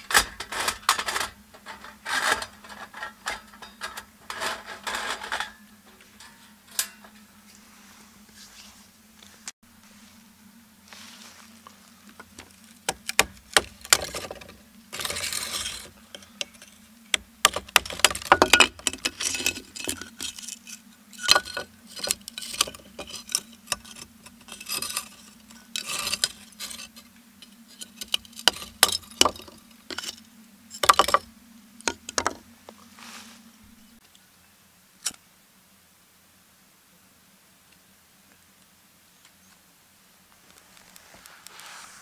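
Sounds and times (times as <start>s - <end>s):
faint steady hum: 0.0s - 42.0s
charred wood cracking and splitting: 12.0s - 30.2s
wood pieces knocking onto boards: 17.5s - 20.2s, 30.8s - 31.3s, 31.9s - 32.4s.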